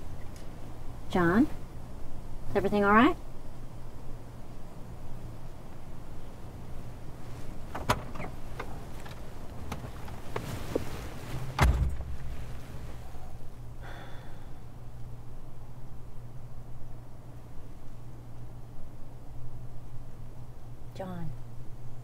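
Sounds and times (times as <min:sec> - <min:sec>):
rustle of someone sitting down: 0:07.0 - 0:13.5
car door shutting thump: 0:11.5 - 0:12.3.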